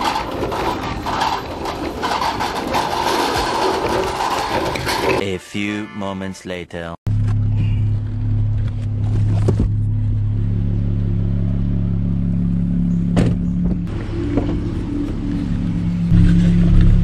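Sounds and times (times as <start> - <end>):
car engine idling: 7.1 - 17.0.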